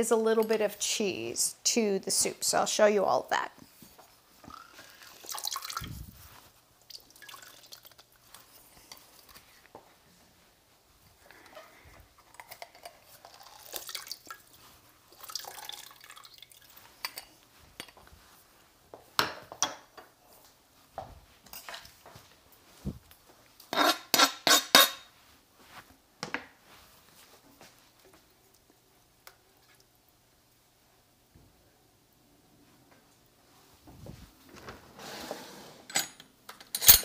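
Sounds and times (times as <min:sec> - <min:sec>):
juice trickling into soup: 0:04.5 - 0:06.0, 0:06.8 - 0:08.4, 0:12.2 - 0:17.3
soft handling noises: 0:25.2 - 0:29.9, 0:32.6 - 0:35.4.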